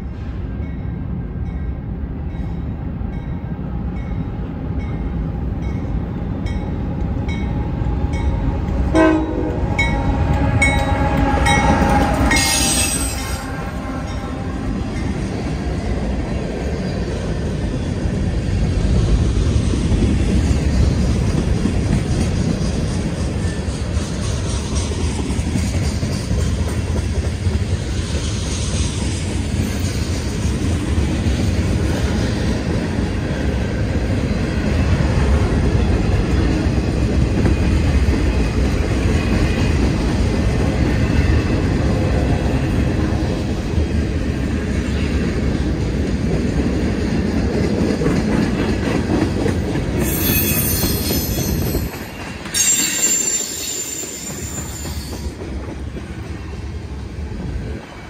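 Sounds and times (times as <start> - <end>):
train wheels rumbling on rail: 0.0 - 58.0
high wheel squeal: 10.6 - 14.2, 50.0 - 55.3.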